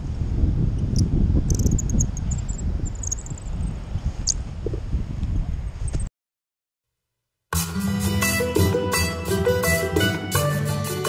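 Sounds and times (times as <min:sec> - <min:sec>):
wind buffeting microphone: 0:00.0 - 0:06.1.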